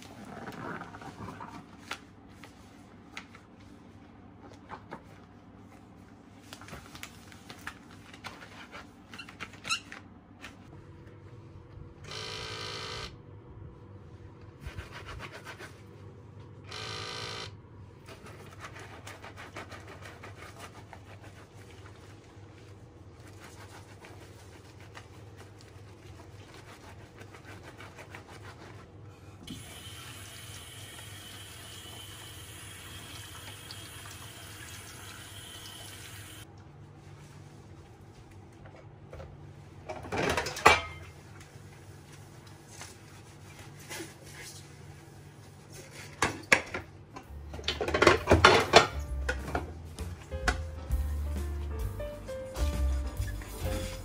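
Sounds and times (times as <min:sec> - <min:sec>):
rubber gloves rustling: 0:20.4 - 0:29.0.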